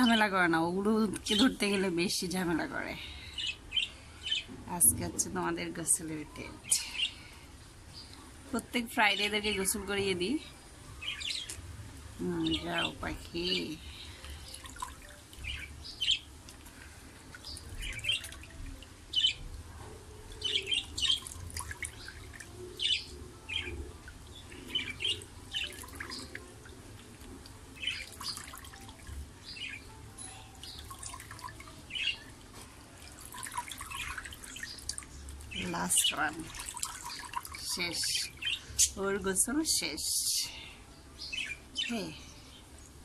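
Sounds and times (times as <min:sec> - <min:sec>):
water dripping and splashing: 0:12.8 - 0:29.8, 0:30.5 - 0:38.6
budgerigars chirping: 0:20.4 - 0:21.4.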